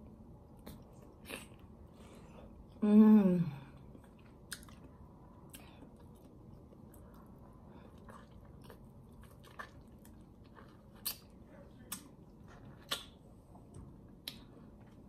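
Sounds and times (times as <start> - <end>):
wet mouth smacks and sucking: 12.8 - 13.2.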